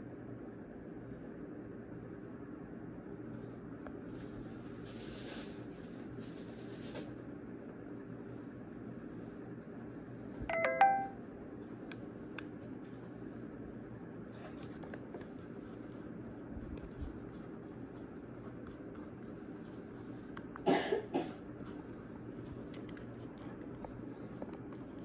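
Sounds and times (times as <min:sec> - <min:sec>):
steady low hum: 0:00.0 - 0:25.0
person coughing: 0:20.6 - 0:21.4.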